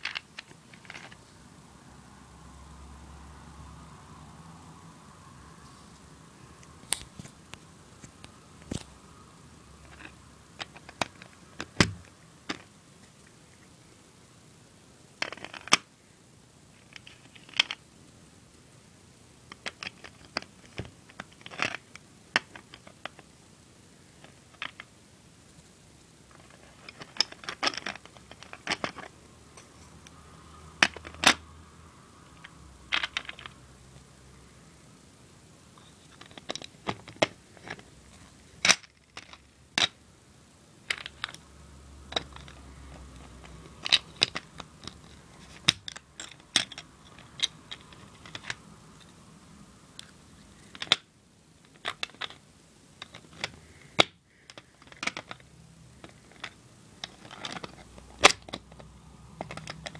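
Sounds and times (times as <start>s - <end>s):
plastic bricks clicking: 9.9s - 12.7s, 15.2s - 15.8s, 26.3s - 29.1s, 36.1s - 37.8s, 42.1s - 48.6s.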